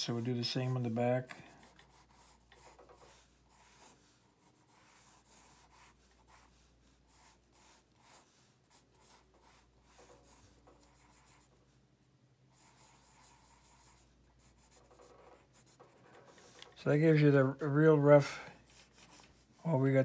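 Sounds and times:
pencil scratching on paper: 0.0s - 11.8s, 12.5s - 17.2s, 18.6s - 20.0s.

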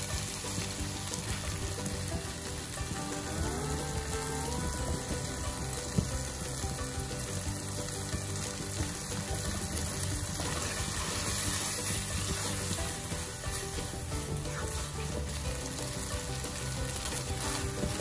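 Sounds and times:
eggs and noodles sizzling in a wok: 0.0s - 18.0s
spatula stirring in a wok: 5.2s - 18.0s.

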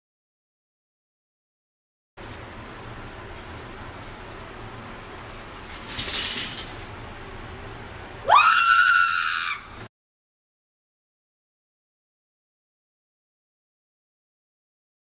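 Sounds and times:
high-pitched scream: 8.2s - 9.8s.

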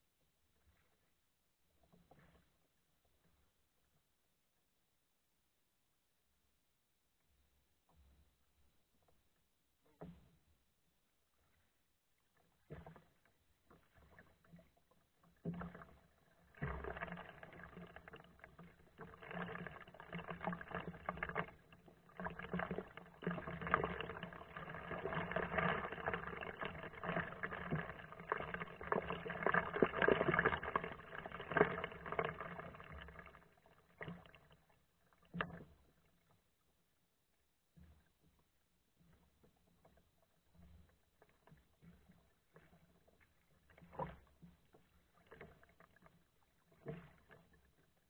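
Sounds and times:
paddle strokes splashing water: 11.2s - 36.6s, 37.8s - 48.0s.

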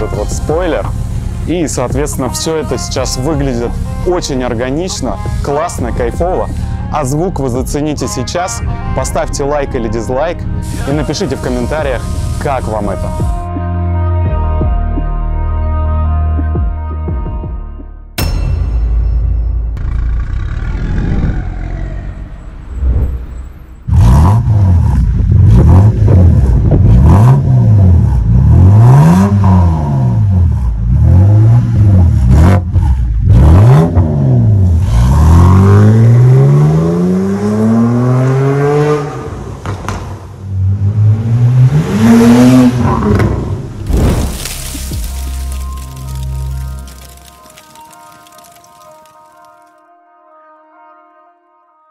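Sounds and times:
car engine revving: 19.8s - 39.9s, 40.5s - 44.0s.

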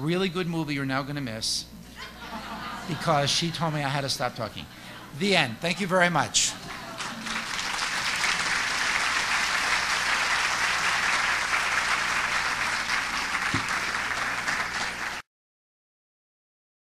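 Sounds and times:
audience applauding: 6.6s - 15.3s.

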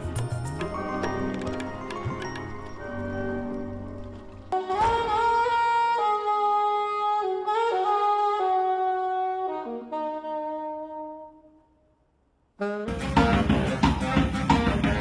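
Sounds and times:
alto saxophone slow melody: 4.5s - 11.9s, 12.6s - 15.0s.

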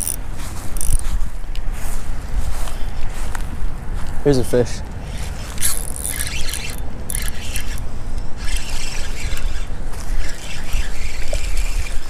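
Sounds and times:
fishing reel cranking: 0.0s - 1.1s, 5.0s - 12.0s
wind noise on microphone: 0.0s - 12.0s.

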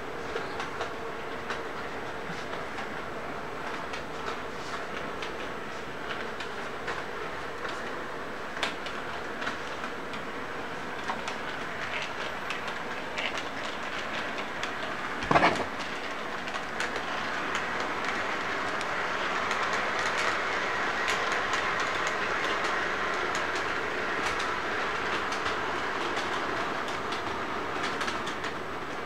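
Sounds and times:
model train wheels clicking: 2.4s - 29.0s.

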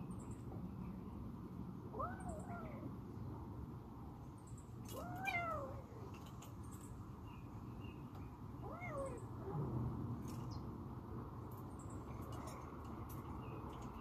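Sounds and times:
cat meowing: 4.9s - 6.1s, 8.6s - 9.5s.

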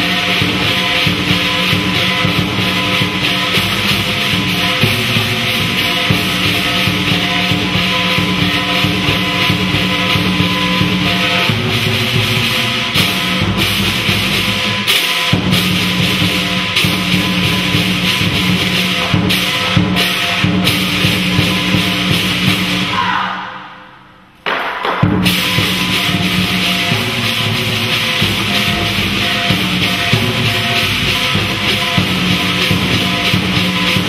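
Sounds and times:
barrel drums beating: 0.0s - 22.9s, 24.4s - 34.0s
hand cymbals clashing: 0.0s - 22.9s, 23.6s - 34.0s.

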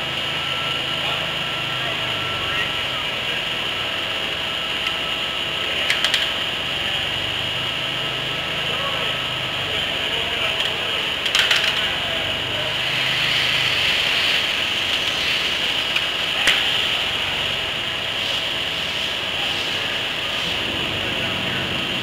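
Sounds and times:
machine shop hiss: 12.7s - 22.0s.

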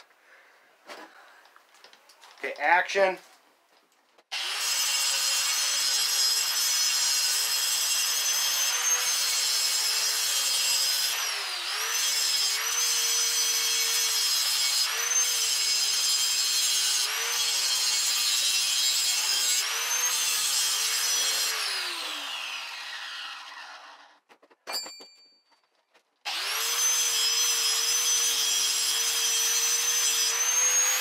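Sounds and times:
angle grinder grinding metal: 4.3s - 24.9s, 26.3s - 31.0s
grinder motor winding down: 21.0s - 24.2s.

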